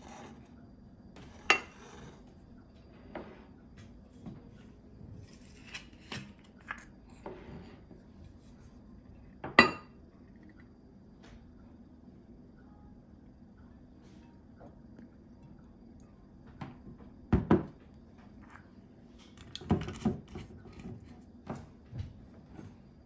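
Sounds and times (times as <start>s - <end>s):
dishes clattering and clinking: 1.2s - 2.0s, 9.4s - 9.9s.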